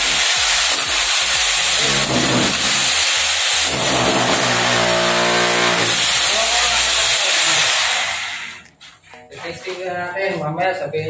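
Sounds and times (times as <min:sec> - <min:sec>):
rotary hammer chiselling concrete: 0:00.0 - 0:08.2.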